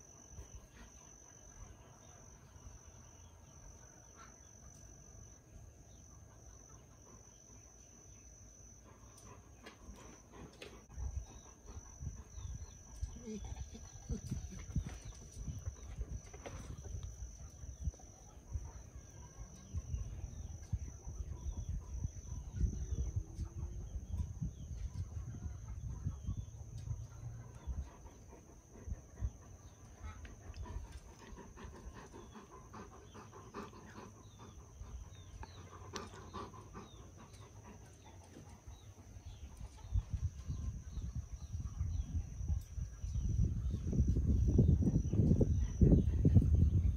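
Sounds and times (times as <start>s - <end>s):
faint higher dog sounds: 8.8s - 21.3s
dog breathing and grumbling: 27.4s - 39.2s.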